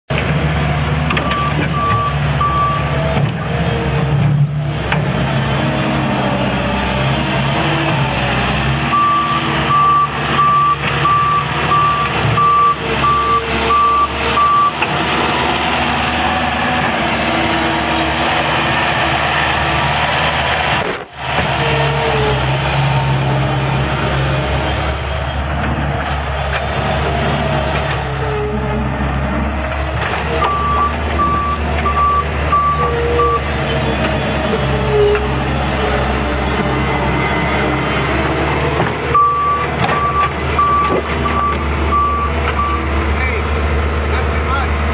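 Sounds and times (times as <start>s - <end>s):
diesel engine running under load: 0.1s - 44.9s
backup alarm beeps: 8.9s - 14.8s, 30.5s - 33.4s, 39.2s - 42.8s.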